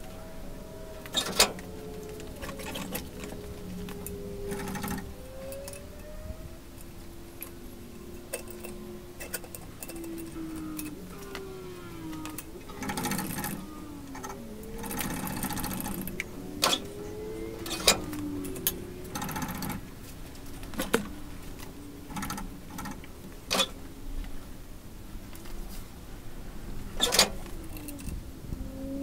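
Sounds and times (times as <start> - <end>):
squeaky gliding tones: 0.0 - 23.9
rapid mechanical ratcheting: 4.5 - 5.8, 12.4 - 16.9, 17.6 - 19.8, 22.1 - 23.8.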